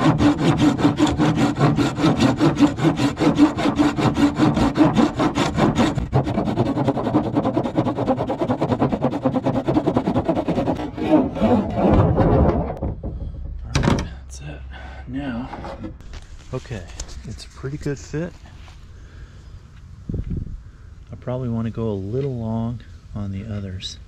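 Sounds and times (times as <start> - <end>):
hand saw cutting wood: 0.0 - 12.8.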